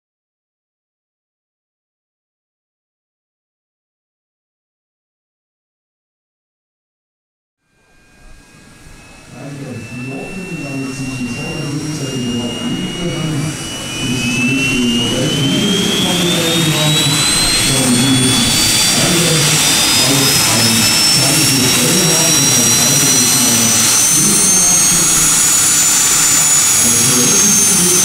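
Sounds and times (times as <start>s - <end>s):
jet turbine spooling up: 7.8s - 28.0s.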